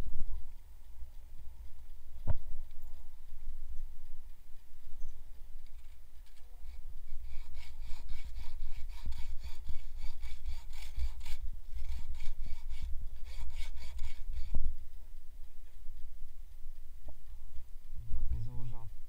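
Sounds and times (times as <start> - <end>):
bow saw cutting wood: 6.7 - 14.6.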